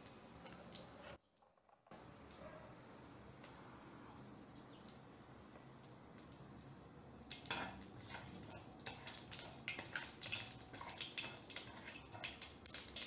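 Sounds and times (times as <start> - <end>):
seeds sizzling in hot oil: 7.2 - 13.0
spatula stirring in wok: 7.4 - 13.0.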